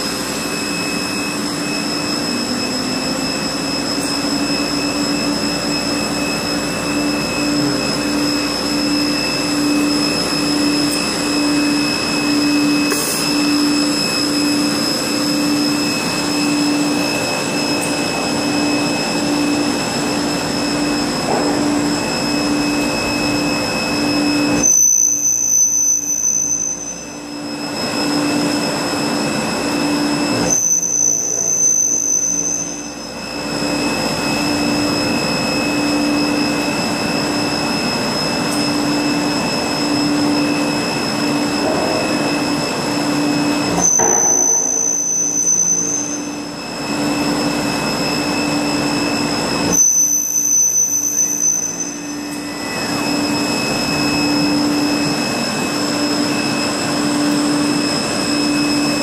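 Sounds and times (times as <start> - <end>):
sawing machine drone with whine: 0.0 - 59.0.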